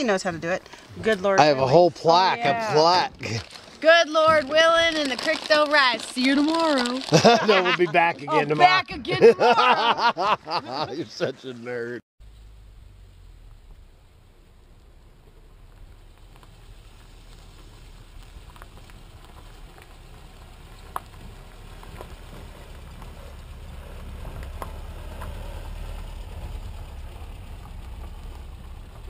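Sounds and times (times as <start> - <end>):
tyres crackling over gravel: 0.0 - 9.2, 13.2 - 29.0
pickup truck engine rumble: 12.2 - 29.0.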